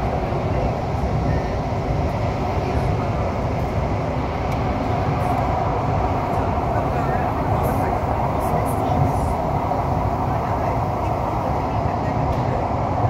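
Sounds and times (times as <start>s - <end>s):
metro train rumbling in tunnel: 0.0s - 13.0s.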